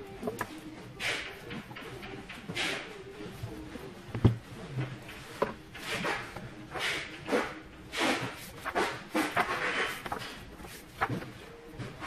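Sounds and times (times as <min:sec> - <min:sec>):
book pages turning: 0:00.2 - 0:12.0.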